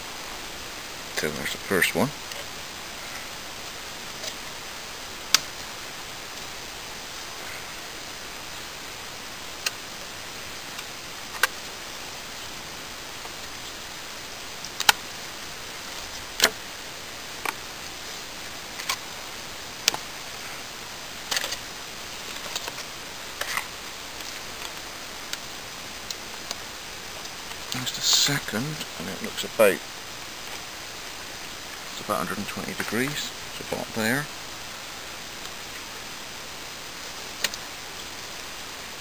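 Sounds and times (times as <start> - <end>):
steady hiss: 0.0 - 39.0
tape clicking and crackling: 5.3 - 5.6, 14.6 - 15.2, 21.2 - 27.9, 37.3 - 38.5.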